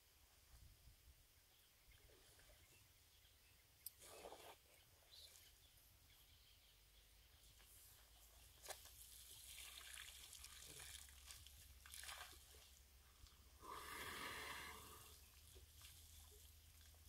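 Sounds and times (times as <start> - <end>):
water splashing and trickling: 8.4 - 13.6, 14.3 - 17.0.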